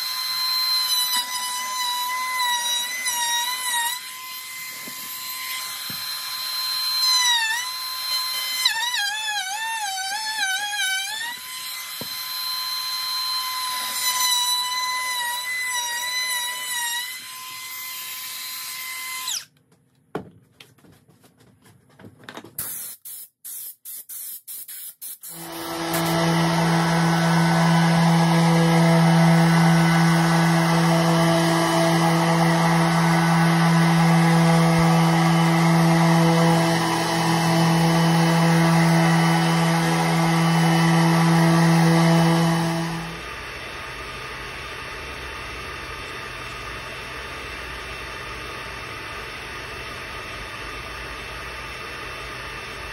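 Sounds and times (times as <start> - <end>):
power tool whining: 0.0 - 19.5, 25.2 - 49.8
orbit sander humming: 25.3 - 49.4.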